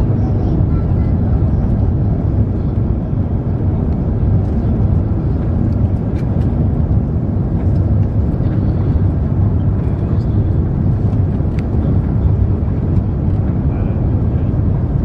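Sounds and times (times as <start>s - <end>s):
airplane cabin noise: 0.0s - 15.0s.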